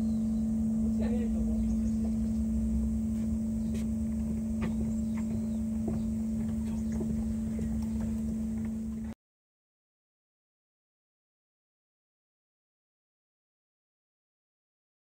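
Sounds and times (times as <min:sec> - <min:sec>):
steady low hum: 0:00.0 - 0:09.2.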